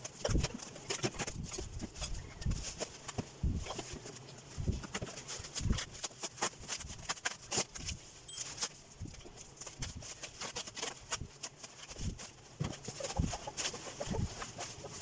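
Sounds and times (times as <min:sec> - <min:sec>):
bubble wrap crinkling: 0:00.0 - 0:15.0.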